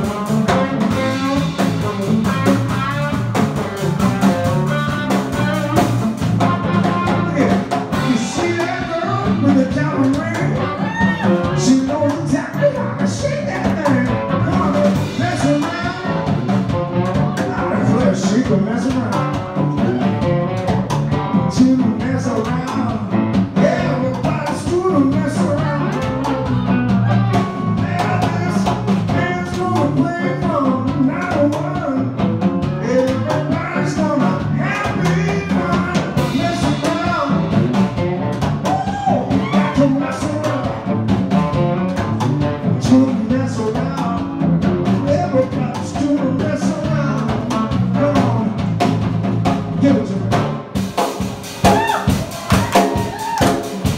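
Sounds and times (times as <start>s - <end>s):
drum kit: 0.0s - 53.9s
electric guitar: 0.0s - 53.9s
man singing: 6.4s - 26.5s, 27.3s - 38.0s, 38.6s - 41.9s, 42.5s - 49.0s, 49.8s - 50.6s.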